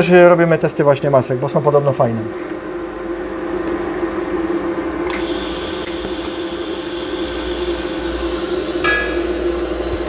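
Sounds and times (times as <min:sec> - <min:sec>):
low steady hum: 0:00.0 - 0:10.0
welding torch hissing: 0:05.1 - 0:10.0.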